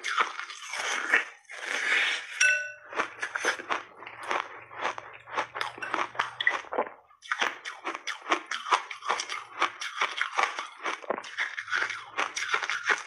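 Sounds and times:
ice being bitten and chewed: 0.0 - 13.0
ice clinking against glass bowl: 2.4 - 2.8.

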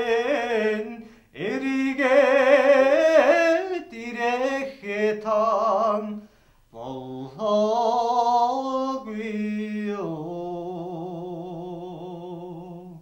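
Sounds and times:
man singing unaccompanied: 0.0 - 13.0.

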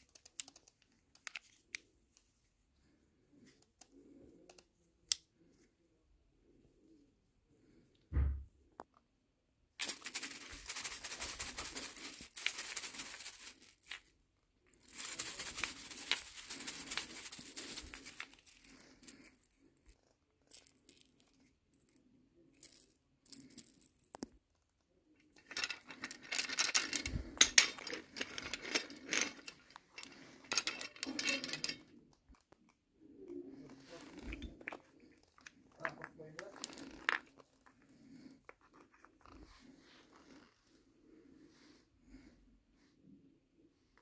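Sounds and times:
wooden bead toy rattling: 9.8 - 14.1, 14.7 - 21.4, 25.3 - 32.0.

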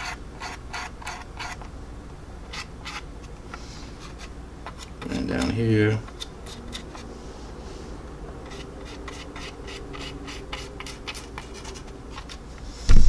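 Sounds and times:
paintbrush scratching on plastic: 0.0 - 1.6, 2.5 - 7.1, 8.4 - 12.4.

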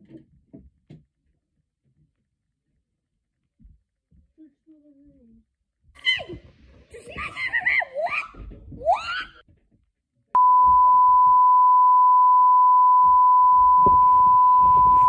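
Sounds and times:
steady test tone beep: 10.4 - 15.0.

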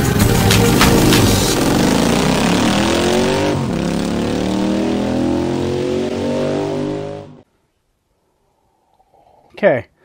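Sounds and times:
vehicle engine accelerating: 0.0 - 7.4.

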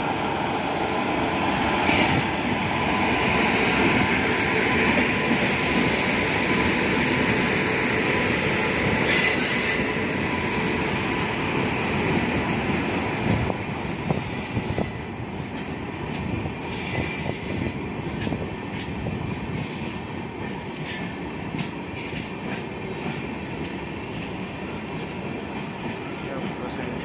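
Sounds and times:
wheels rumbling on rail: 0.0 - 27.0.

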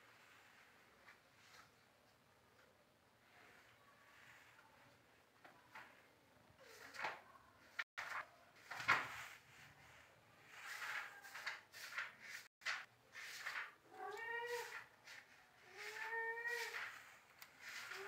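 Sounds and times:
scraping and rustling: 3.3 - 18.0
cat meowing: 13.9 - 14.8.

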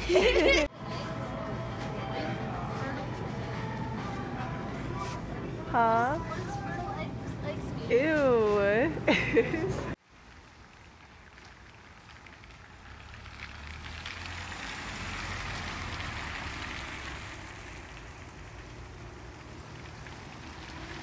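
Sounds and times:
low engine hum: 0.0 - 10.0, 11.8 - 21.0
tyre hiss on wet road: 10.1 - 21.0.

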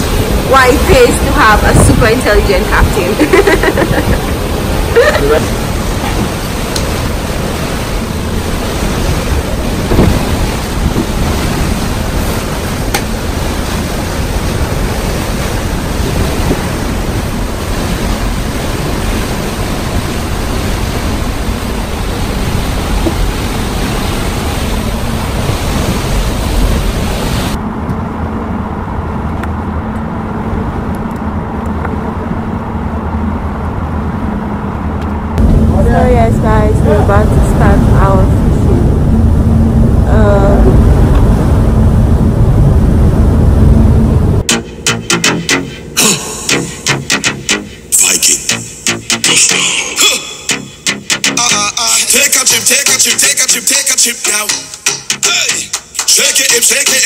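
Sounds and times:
wind rushing over microphone: 0.0 - 44.5
boat engines rushing: 0.0 - 57.0
low engine drone: 0.0 - 57.0
water rushing: 0.0 - 57.0.

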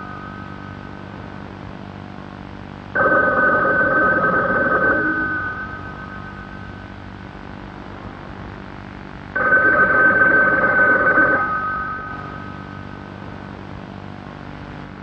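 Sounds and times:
high ringing tone: 0.0 - 1.9, 3.0 - 7.8, 9.4 - 13.6.

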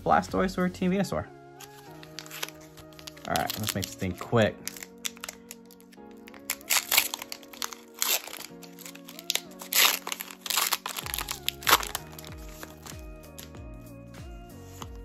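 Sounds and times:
foil wrapper crinkling and tearing: 1.6 - 13.6.

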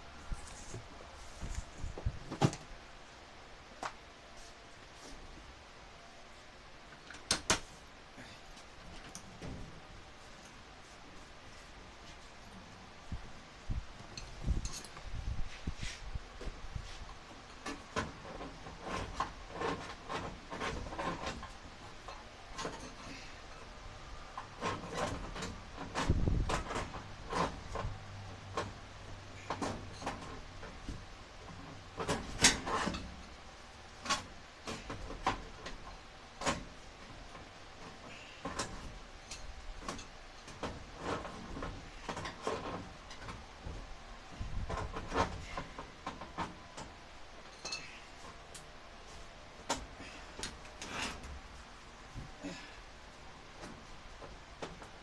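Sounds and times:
clicks and scrapes on metal vent pipe: 14.0 - 51.4.

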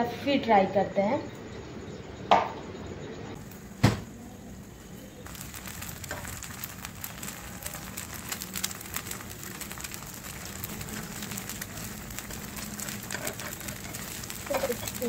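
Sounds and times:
eggs sizzling in oil: 3.4 - 15.0.

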